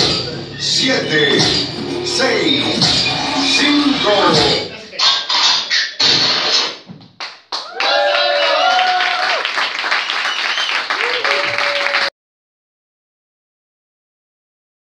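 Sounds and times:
dance music: 0:00.0 - 0:06.7
crowd clapping and cheering: 0:07.1 - 0:12.2
shouts and whoops: 0:07.6 - 0:09.5, 0:10.8 - 0:12.1.

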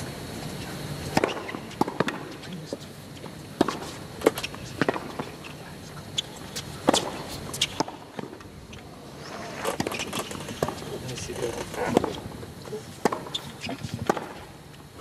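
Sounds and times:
ball bouncing on court: 0:01.1 - 0:02.3, 0:13.0 - 0:14.4
tennis ball hit by rackets: 0:01.1 - 0:02.4, 0:03.6 - 0:05.3, 0:06.8 - 0:08.4, 0:09.7 - 0:10.8, 0:13.0 - 0:14.4.

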